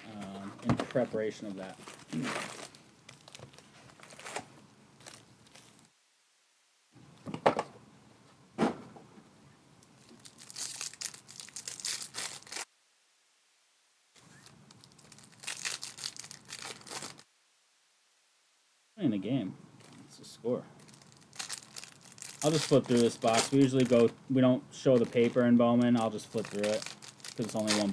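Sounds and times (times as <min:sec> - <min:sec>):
card pack wrappers crinkling and tearing: 0:00.1 - 0:05.9, 0:10.0 - 0:12.7, 0:14.2 - 0:17.3, 0:20.8 - 0:24.2, 0:24.8 - 0:27.9.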